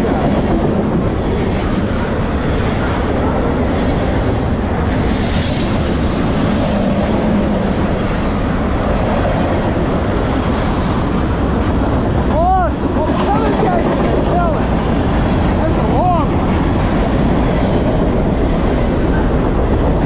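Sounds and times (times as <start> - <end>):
train wheels rumbling on rail: 0.0 - 20.0
high wheel squeal: 5.0 - 9.0.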